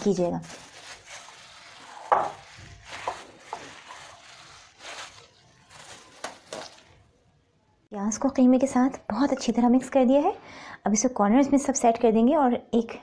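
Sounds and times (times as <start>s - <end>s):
hand kneading mince squishing: 0.0s - 7.0s.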